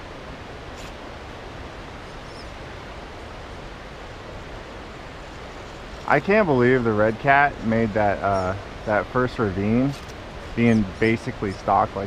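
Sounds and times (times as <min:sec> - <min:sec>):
outdoor background hiss: 0:00.0 - 0:12.0.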